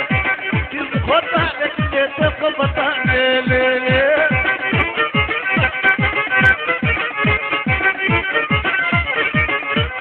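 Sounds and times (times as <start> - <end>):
ornamented lead melody: 0.0 - 10.0.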